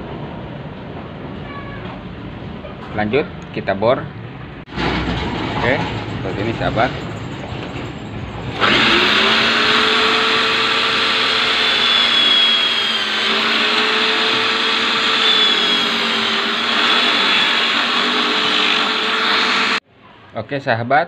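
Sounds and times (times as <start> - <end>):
drill bit grinding shell: 5.0 - 19.8
electric drill motor whine: 8.4 - 19.8.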